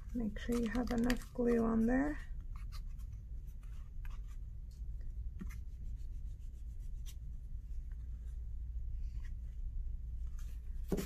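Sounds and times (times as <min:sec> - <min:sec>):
paper rustling and rubbing: 0:00.0 - 0:04.7
faint paper crinkles: 0:00.0 - 0:05.6.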